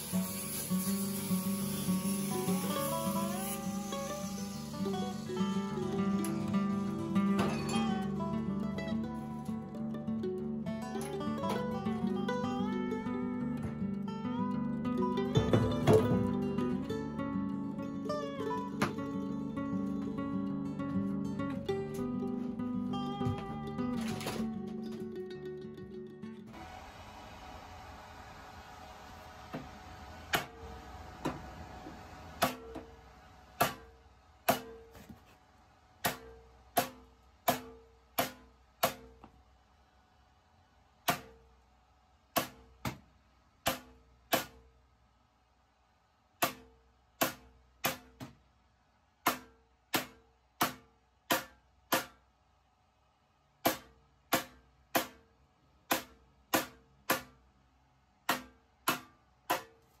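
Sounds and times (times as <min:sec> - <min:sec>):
hammer striking steel tube: 0:33.6 - 0:33.9, 0:34.5 - 0:35.0, 0:36.0 - 0:39.2, 0:43.6 - 0:44.6, 0:46.4 - 0:48.3, 0:49.2 - 0:52.2, 0:53.6 - 0:55.2, 0:55.9 - 0:57.4, 0:58.3 - 0:59.8.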